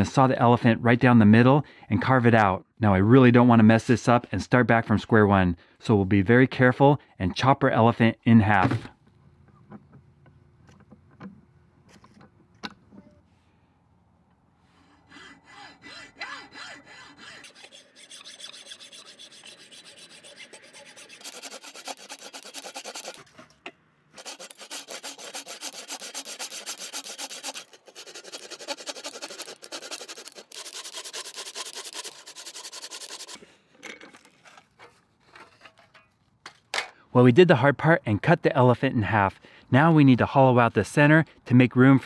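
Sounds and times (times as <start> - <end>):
hacksaw cutting wood: 15.0 - 23.4, 24.2 - 33.5.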